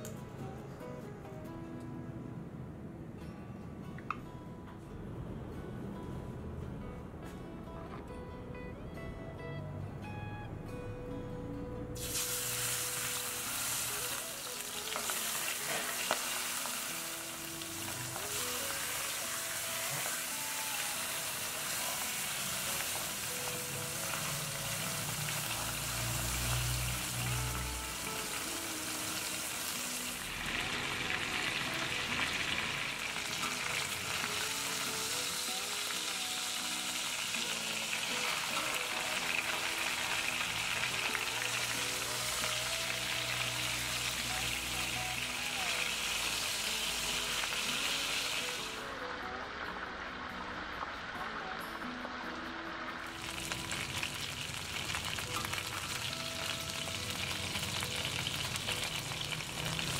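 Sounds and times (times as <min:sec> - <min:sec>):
soft guitar music: 0:00.0 - 0:59.9
food sizzling in a pan: 0:12.0 - 0:51.6, 0:52.7 - 0:59.9.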